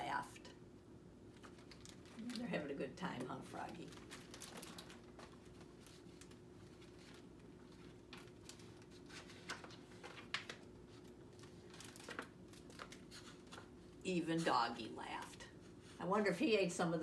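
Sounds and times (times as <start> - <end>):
faint steady hum: 0.0 - 17.0
book pages turning: 3.5 - 13.9.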